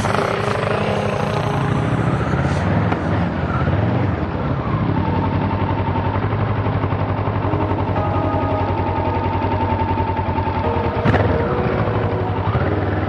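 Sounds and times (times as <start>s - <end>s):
motorcycle engine idling: 5.1s - 13.0s.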